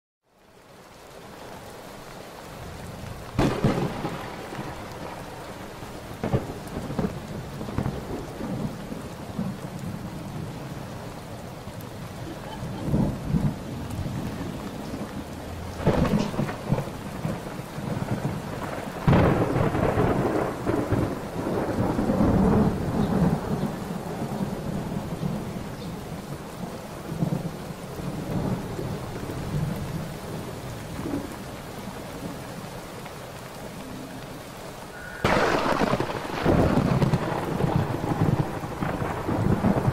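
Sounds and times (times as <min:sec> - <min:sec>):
steady rain: 0:00.2 - 0:39.9
rolling thunder rumbles: 0:02.5 - 0:32.4, 0:34.9 - 0:39.9
thunder cracks: 0:03.2 - 0:10.0, 0:12.6 - 0:25.4, 0:35.0 - 0:39.9.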